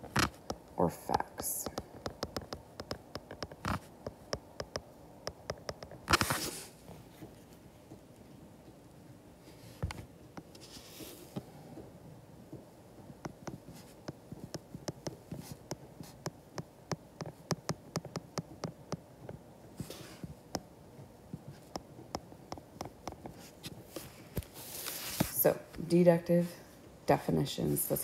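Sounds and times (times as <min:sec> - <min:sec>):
stylus tapping on glass screen: 0:00.4 - 0:06.0, 0:13.2 - 0:19.0.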